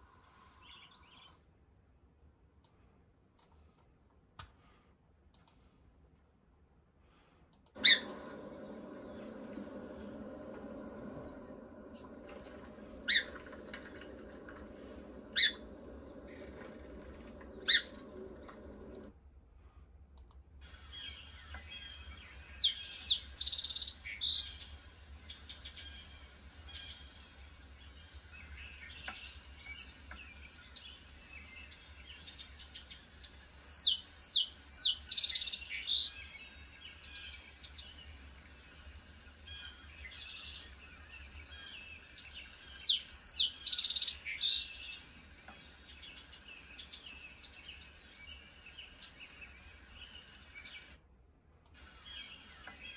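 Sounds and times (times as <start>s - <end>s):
faint bird chirps: 7.8s - 19.0s, 20.8s - 50.9s
sparrow singing: 7.8s - 19.0s, 21.0s - 38.2s, 39.5s - 50.9s.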